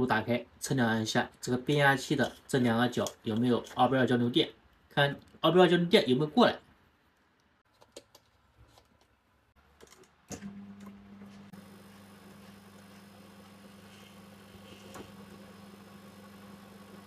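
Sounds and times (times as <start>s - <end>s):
faint clicks and taps: 7.2s - 10.1s
microwave oven humming: 10.3s - 17.0s.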